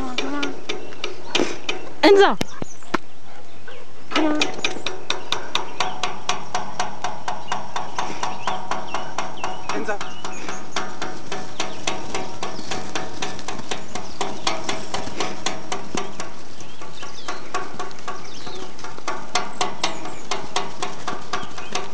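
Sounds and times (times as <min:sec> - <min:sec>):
stick knocking on wooden gate: 0:00.0 - 0:02.0, 0:04.2 - 0:21.9.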